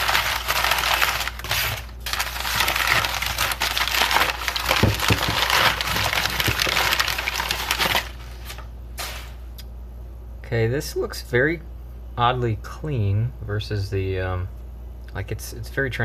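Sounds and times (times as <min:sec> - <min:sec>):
paper crumpling and crinkling: 0:00.0 - 0:09.4.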